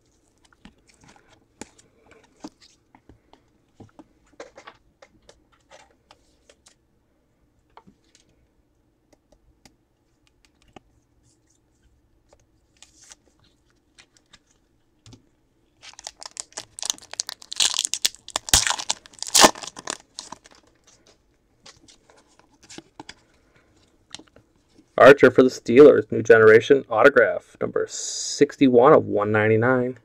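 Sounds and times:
foil wrapper tearing and crinkling: 15.8s - 20.7s.

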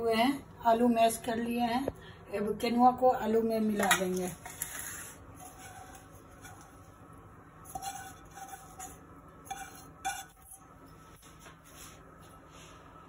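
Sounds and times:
metal pot clinking against bowl: 7.7s - 10.6s.

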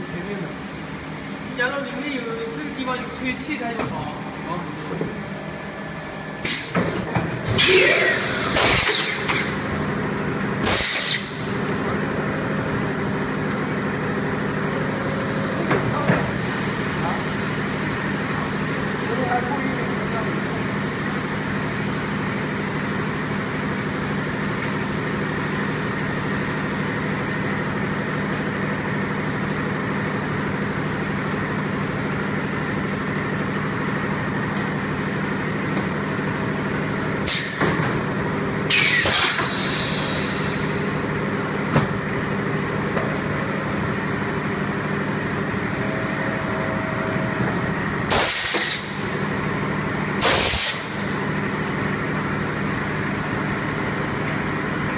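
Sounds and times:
machine humming: 0.0s - 54.9s
compressed air hissing: 7.6s - 9.5s, 38.7s - 40.8s.

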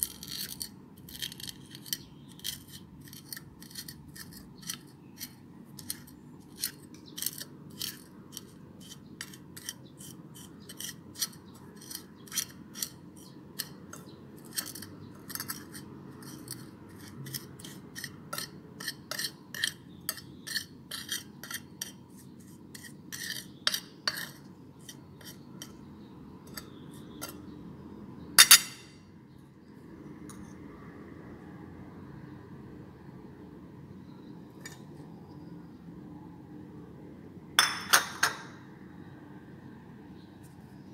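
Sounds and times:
metal spoon clinking on glass plate: 28.4s - 28.9s.

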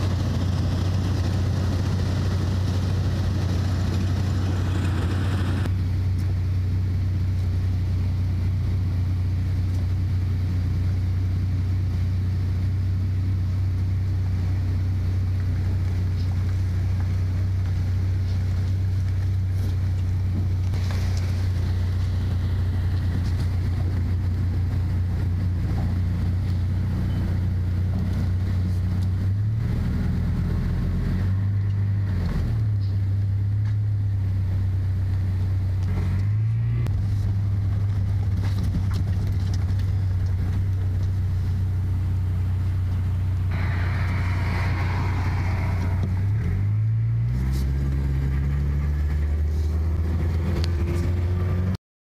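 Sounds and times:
car engine running: 0.0s - 51.8s
rushing hiss: 43.5s - 47.0s.

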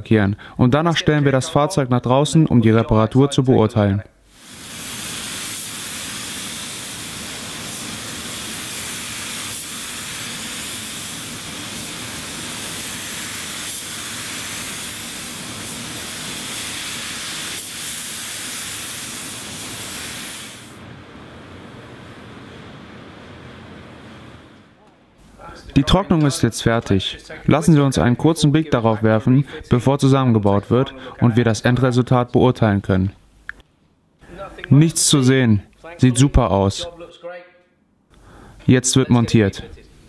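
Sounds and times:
paint spray gun hissing: 4.3s - 20.8s.

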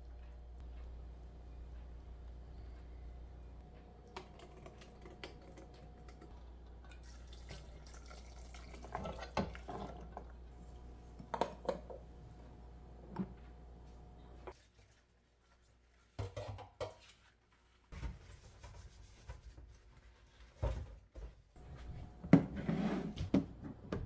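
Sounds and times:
low hum: 0.0s - 7.0s.

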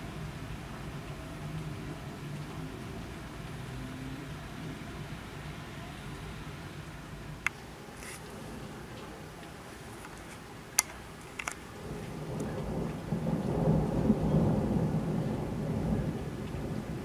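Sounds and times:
steady rain: 0.0s - 17.0s
thunder rumbling: 11.4s - 17.0s.

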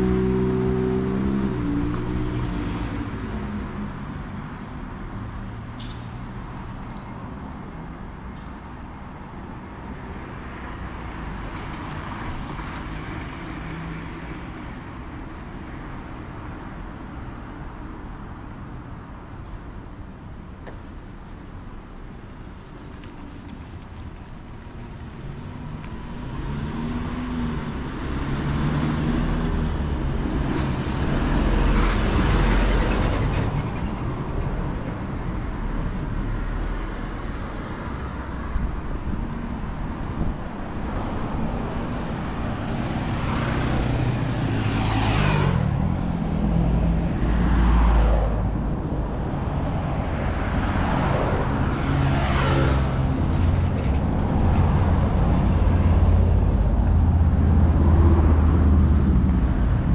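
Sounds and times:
vehicles passing: 0.0s - 59.9s.

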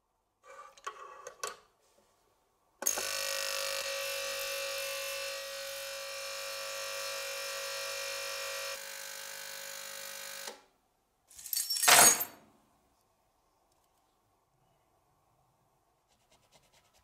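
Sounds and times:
ultrasonic cleaner buzzing: 2.9s - 10.5s.

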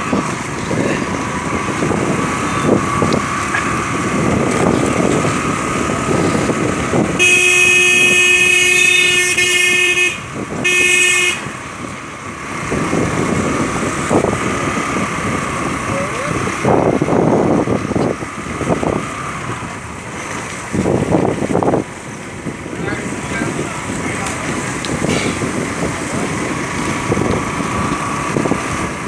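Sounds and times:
motorcycle engine: 0.0s - 29.0s
wind noise: 0.0s - 29.0s
vehicle horn honking: 7.2s - 11.6s.

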